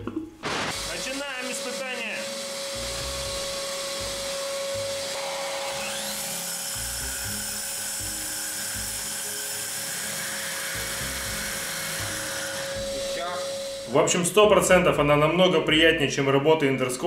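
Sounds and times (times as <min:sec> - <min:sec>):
dust extractor humming: 0:00.4 - 0:14.2
core drill cutting concrete: 0:00.7 - 0:13.9.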